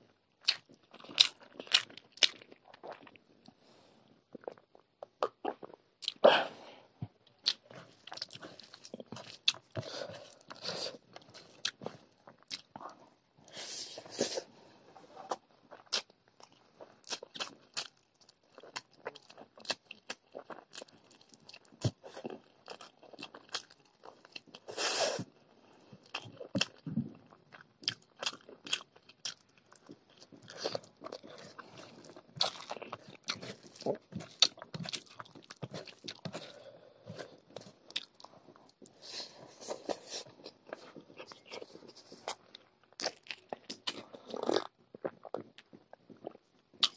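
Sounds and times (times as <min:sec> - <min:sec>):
wet chewing: 0:07.3 - 0:13.0, 0:26.0 - 0:46.9.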